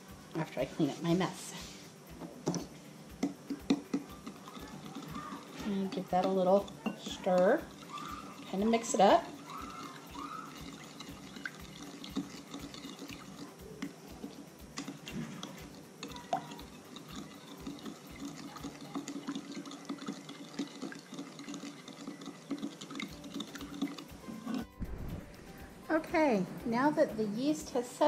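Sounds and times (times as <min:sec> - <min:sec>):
spoon tapping against glass: 0:02.5 - 0:05.3, 0:05.9 - 0:07.5
liquid sloshing in a bowl: 0:03.5 - 0:24.7.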